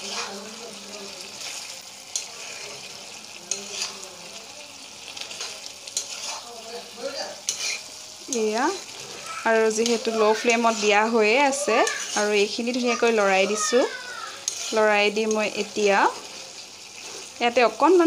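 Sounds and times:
spatula scraping pan: 0:00.0 - 0:04.2, 0:05.1 - 0:17.4
gentle sizzle: 0:00.0 - 0:18.0.

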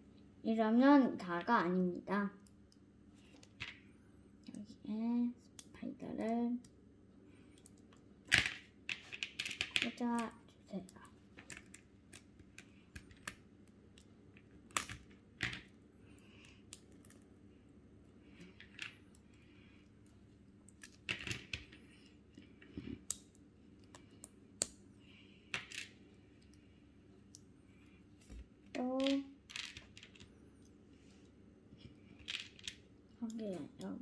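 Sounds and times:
plastic pieces clicking together: 0:07.6 - 0:10.3, 0:28.8 - 0:30.3, 0:32.2 - 0:33.9.

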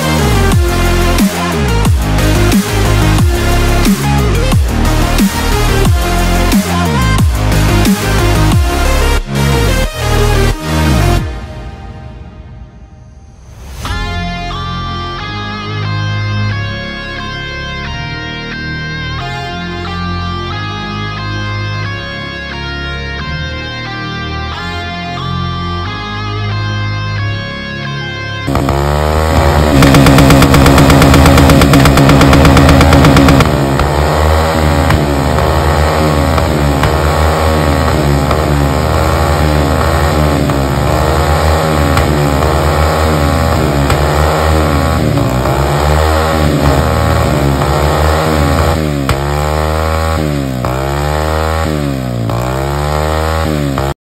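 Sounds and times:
motorcycle engine revving: 0:00.0 - 0:11.5, 0:28.4 - 0:54.0.

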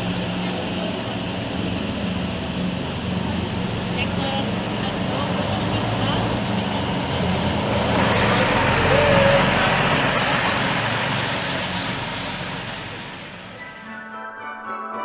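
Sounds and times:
diesel truck driving past: 0:00.0 - 0:13.9.

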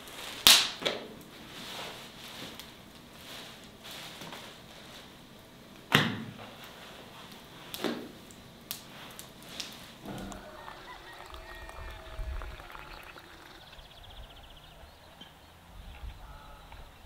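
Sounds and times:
soft rustling of handling: 0:01.5 - 0:05.2.

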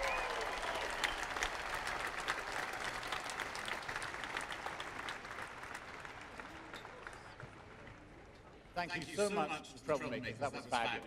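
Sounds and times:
large crowd applauding: 0:00.0 - 0:08.3.

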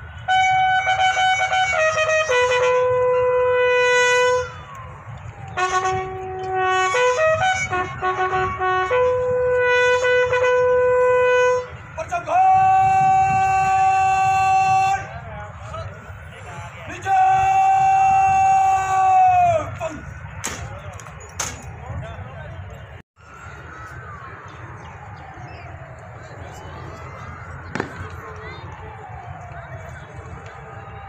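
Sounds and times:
bugle call: 0:00.0 - 0:04.9, 0:05.5 - 0:15.2.

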